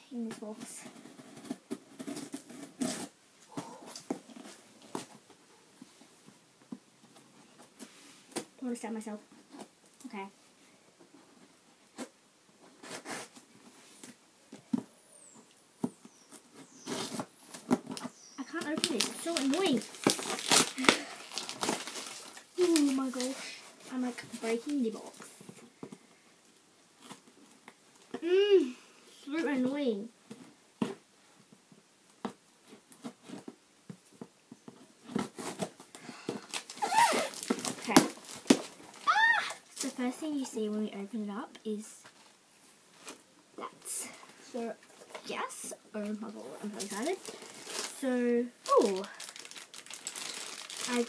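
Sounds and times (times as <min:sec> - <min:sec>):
cardboard scraping and rustling: 0:00.4 - 0:05.1, 0:16.2 - 0:20.7
cardboard box being torn open: 0:18.8 - 0:23.2, 0:36.4 - 0:39.1.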